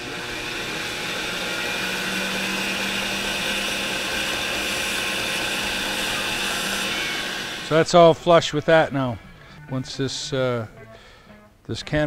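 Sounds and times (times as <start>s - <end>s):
belt grinder grinding: 0.0s - 8.9s
motor humming: 0.0s - 10.6s.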